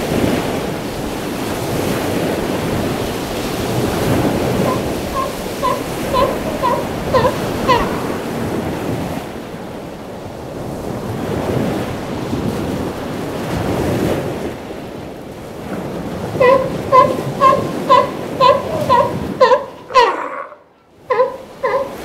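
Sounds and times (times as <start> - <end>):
surf breaking on beach: 0.0 - 19.9
wind buffeting microphone: 0.0 - 22.0
elephant seals calling: 3.3 - 9.2, 16.2 - 22.0.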